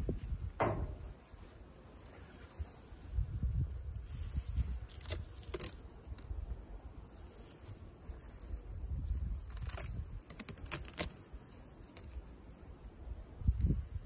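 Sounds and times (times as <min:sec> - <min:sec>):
wind rumble on microphone: 0:00.0 - 0:01.4, 0:02.5 - 0:05.2, 0:08.4 - 0:10.4, 0:13.0 - 0:14.0
foil insulation sheet crackling: 0:04.1 - 0:06.6, 0:07.2 - 0:12.5.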